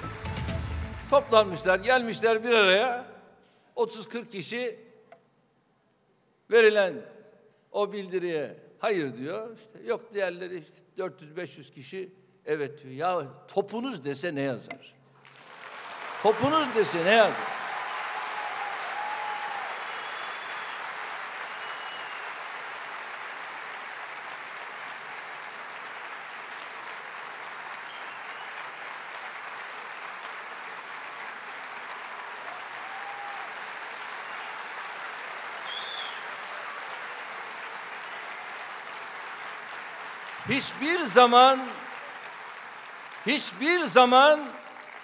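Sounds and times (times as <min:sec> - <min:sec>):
audience applauding: 0:15.2 - 0:45.0.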